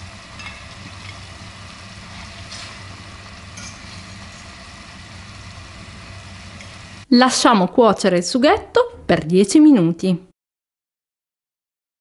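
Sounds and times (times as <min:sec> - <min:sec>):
steady low hum: 0:00.0 - 0:07.1
sauce sizzling in pan: 0:00.0 - 0:07.4.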